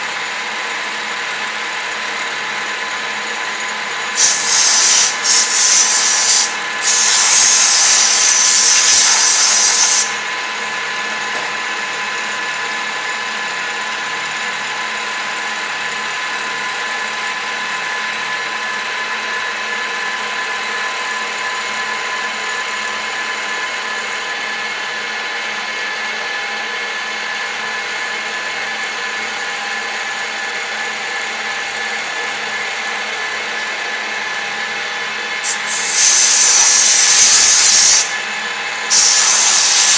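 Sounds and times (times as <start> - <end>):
milling machine whine: 0.0 - 39.9
loud hiss: 4.1 - 10.2, 35.4 - 38.2, 38.8 - 39.9.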